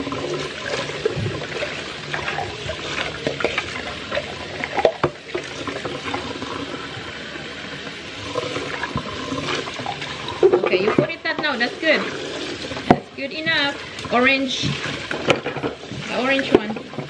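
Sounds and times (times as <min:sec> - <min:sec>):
cups knocking in sink: 0:14.5 - 0:17.0.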